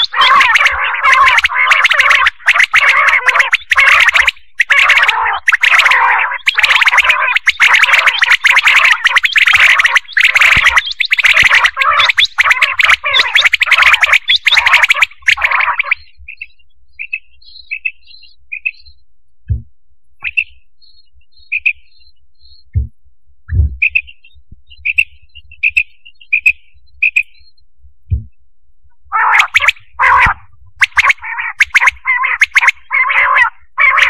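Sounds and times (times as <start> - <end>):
quail calling: 0.0 - 18.9, 29.1 - 34.0
dull low thumps: 19.4 - 19.8, 22.4 - 26.1, 26.8 - 28.6
soft high chirps: 23.5 - 27.6.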